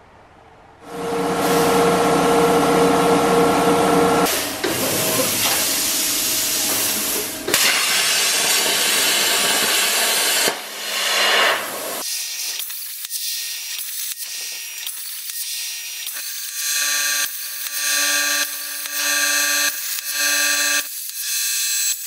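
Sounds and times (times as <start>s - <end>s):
steady hum: 0.0s - 12.0s
plasma cutter torch hissing: 4.3s - 22.0s.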